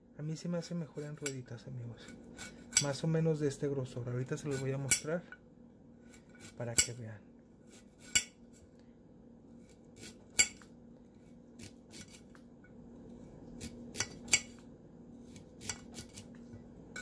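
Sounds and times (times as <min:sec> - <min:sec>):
knife slicing carrot: 0:11.6 - 0:12.3, 0:15.3 - 0:16.3.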